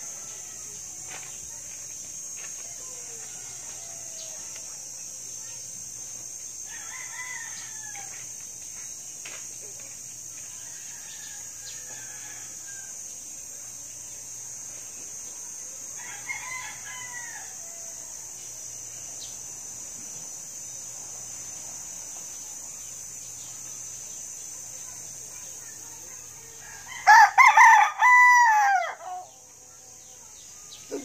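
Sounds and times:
rooster crowing: 0:02.9 - 0:04.6, 0:06.7 - 0:08.2, 0:10.6 - 0:13.0, 0:16.0 - 0:18.0, 0:26.6 - 0:29.4.

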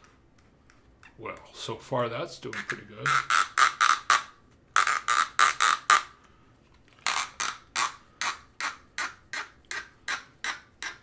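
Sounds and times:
plastic screw squeaking: 0:02.4 - 0:06.1, 0:07.0 - 0:11.0.

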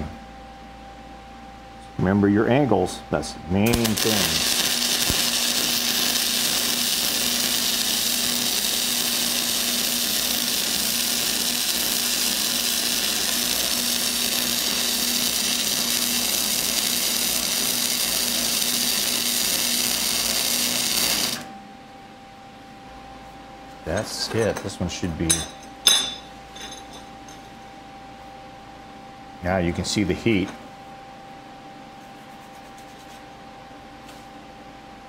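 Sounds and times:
arc welding: 0:03.6 - 0:21.6.

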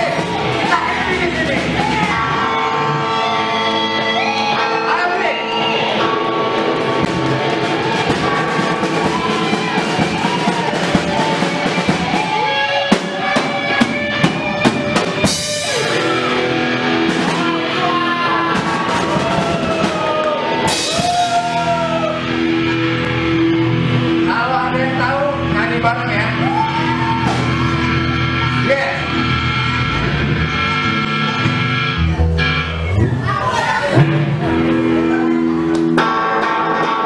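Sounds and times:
live rock band playing: 0:00.0 - 0:37.0
drum fill: 0:06.2 - 0:23.2.

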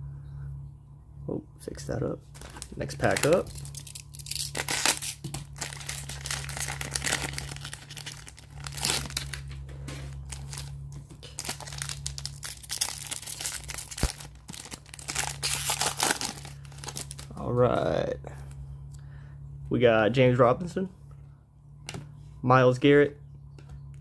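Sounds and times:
plastic wrapper crinkling: 0:02.3 - 0:17.3
plastic wrapper tearing: 0:02.3 - 0:17.3.

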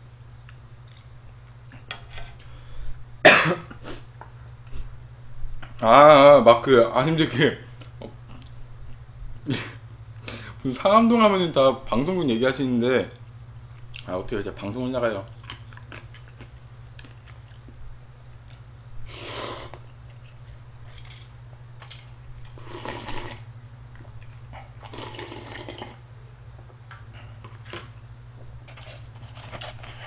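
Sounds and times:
steady low hum: 0:00.0 - 0:30.0
small eating noises: 0:00.2 - 0:02.5, 0:03.9 - 0:04.9, 0:07.7 - 0:09.6, 0:13.1 - 0:30.0
slurping noodles: 0:19.1 - 0:19.8, 0:22.6 - 0:23.5, 0:24.8 - 0:26.0.

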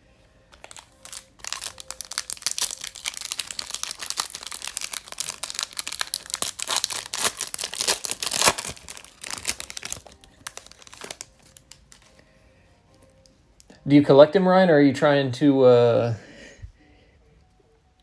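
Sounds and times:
foil wrapper tearing and crinkling: 0:00.5 - 0:12.1.

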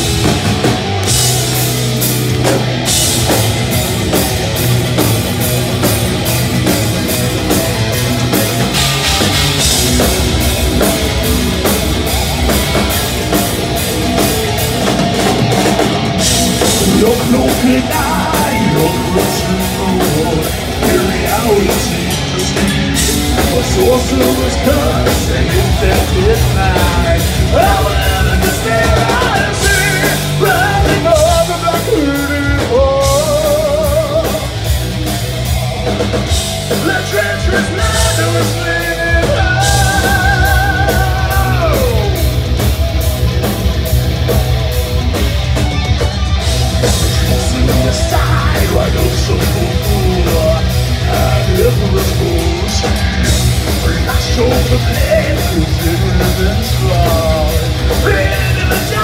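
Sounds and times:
heavy metal band playing live: 0:00.0 - 0:59.0
person singing: 0:16.6 - 0:34.6, 0:36.7 - 0:42.3, 0:46.8 - 0:59.0.

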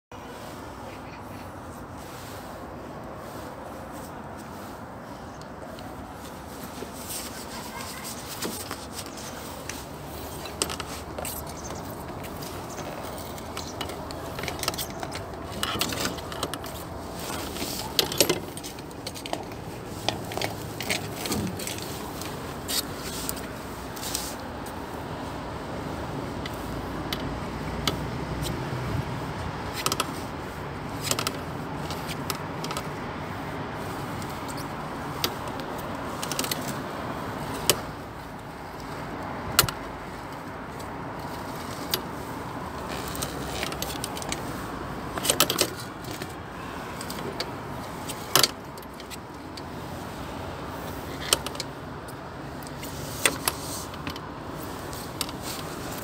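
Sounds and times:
steady background noise: 0:00.1 - 0:56.0
cable reel clicking and rattling: 0:08.0 - 0:24.4, 0:37.4 - 0:46.4.

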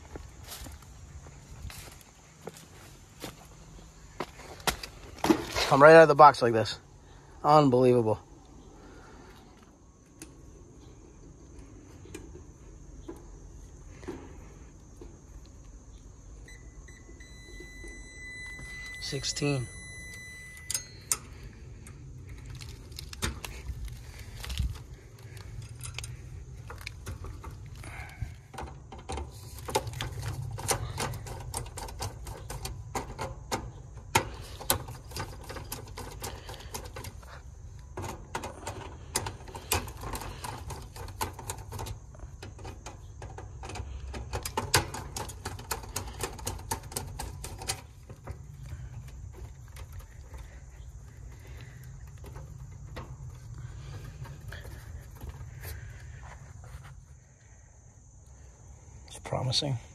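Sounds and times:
short electronic beep: 0:16.5 - 0:21.0.

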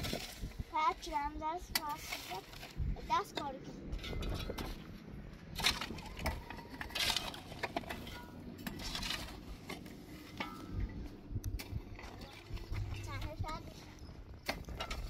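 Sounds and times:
clinks and knocks: 0:03.3 - 0:15.0.

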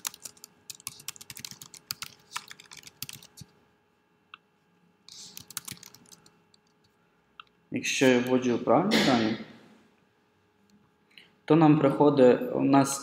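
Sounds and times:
computer keyboard typing: 0:00.0 - 0:03.5, 0:05.1 - 0:06.8.

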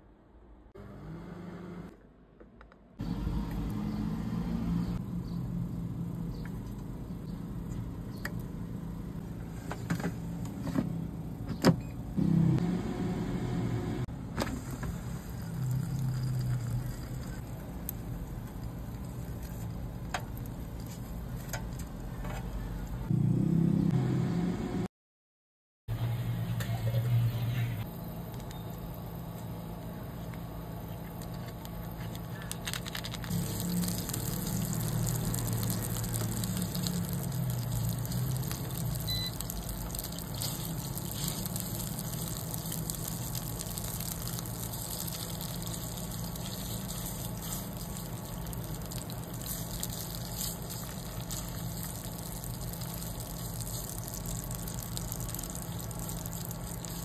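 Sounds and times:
curry paste sizzling in oil: 0:33.3 - 0:57.0.

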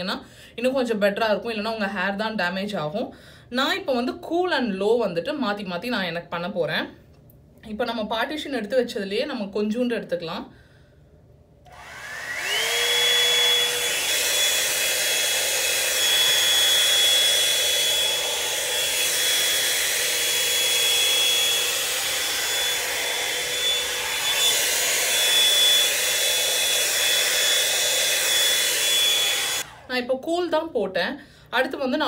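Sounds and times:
hot air brush blowing: 0:11.7 - 0:30.0.

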